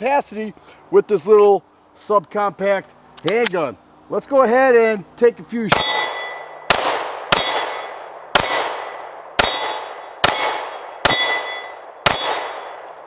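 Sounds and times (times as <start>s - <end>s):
steel plate target ringing: 5.7s - 6.7s, 7.3s - 12.8s
pistol shots: 5.7s - 12.9s.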